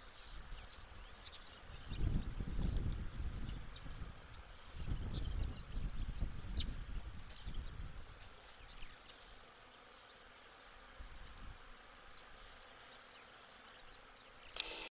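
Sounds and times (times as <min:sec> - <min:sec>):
steady hiss: 0:00.0 - 0:14.9
wind rumble on microphone: 0:01.7 - 0:08.2.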